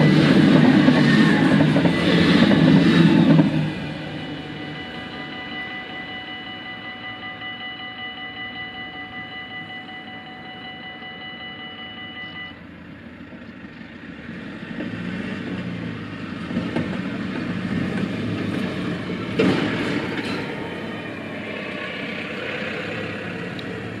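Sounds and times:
truck engine and tyres: 0.0 - 24.0
level-crossing bells ringing: 2.0 - 12.5.

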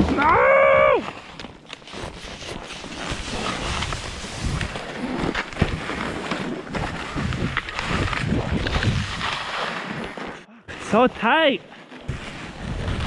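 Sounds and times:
skis scraping on snow: 1.0 - 13.0
wind rumbling on microphone: 3.0 - 6.1, 6.7 - 9.6, 12.1 - 13.0.

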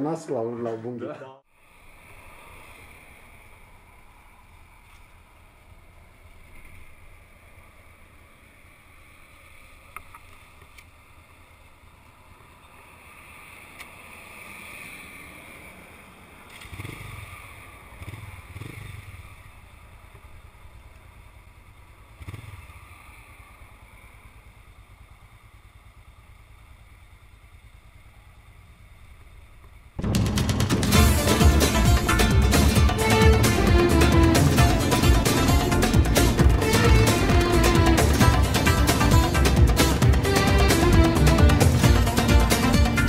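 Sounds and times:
muffled motorcycle engines idling: 16.2 - 43.0.

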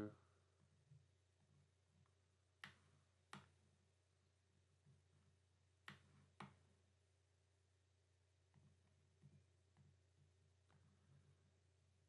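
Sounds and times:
computer mouse clicks: 2.6 - 3.6, 5.8 - 6.6.

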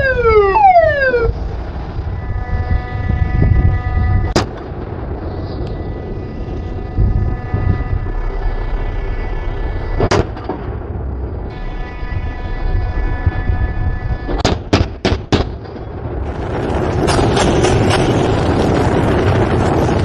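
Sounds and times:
faint whine: 0.0 - 14.7
low rumble: 0.0 - 20.0
naval gun firing: 14.4 - 15.7.

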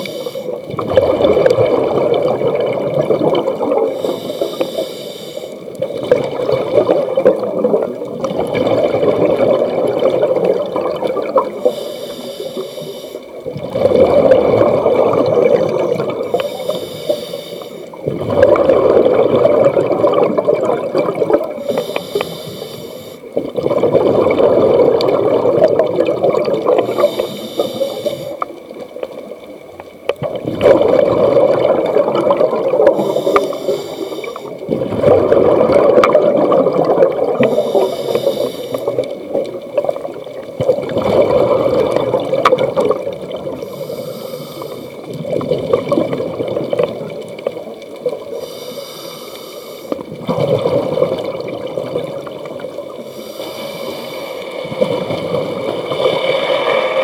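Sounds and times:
regulator inhale hiss: 0.0 - 0.7, 3.9 - 5.8, 11.5 - 13.4, 15.4 - 18.0, 21.6 - 23.4, 26.8 - 28.6, 32.9 - 34.6, 37.4 - 39.2, 43.6 - 45.1, 48.3 - 50.1, 53.0 - 54.6
rumbling exhaled bubbles: 0.6 - 4.1, 5.8 - 11.7, 13.4 - 16.6, 17.9 - 21.7, 23.3 - 27.2, 28.5 - 48.4, 50.0 - 53.1, 54.4 - 57.0.

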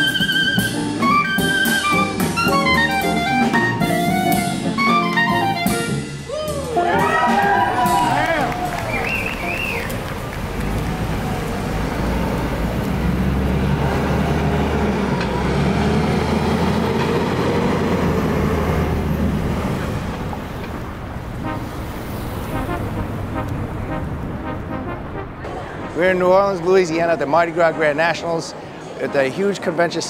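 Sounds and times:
street traffic: 0.0 - 30.0
heavy vehicle engine droning: 7.8 - 28.1.

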